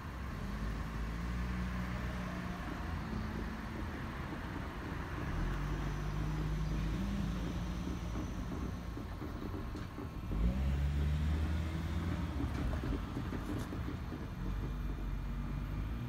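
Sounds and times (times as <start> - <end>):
low vehicle rumble: 0.0 - 16.0.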